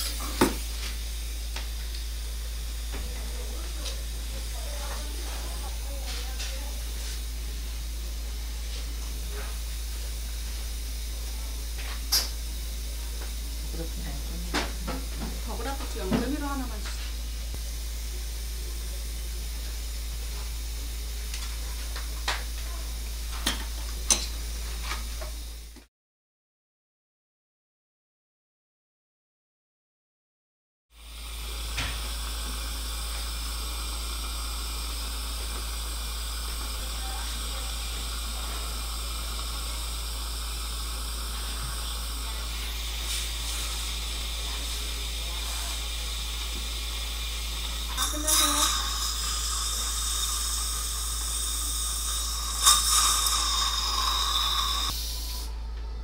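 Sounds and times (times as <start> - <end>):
suction tip hissing: 0.0 - 8.1, 8.7 - 18.6, 31.0 - 55.5
steady low hum: 0.0 - 25.8, 31.0 - 56.0.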